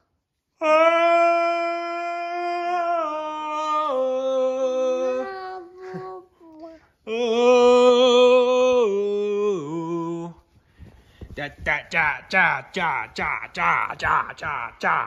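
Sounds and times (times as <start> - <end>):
person singing long notes: 0.6 - 10.4.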